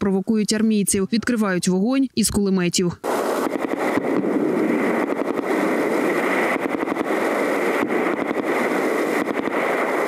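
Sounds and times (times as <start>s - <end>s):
steady noisy hiss: 1.7s - 10.0s
machine-gun fire bursts: 3.0s - 10.0s.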